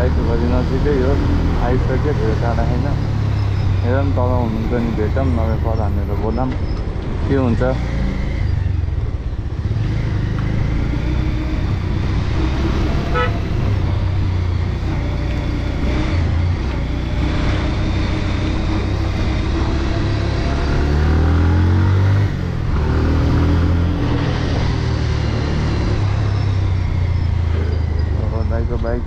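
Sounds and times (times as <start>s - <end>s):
vehicle engine and road rumble: 0.0s - 29.0s
engine accelerating: 7.3s - 29.0s
short horn beep: 13.1s - 13.4s.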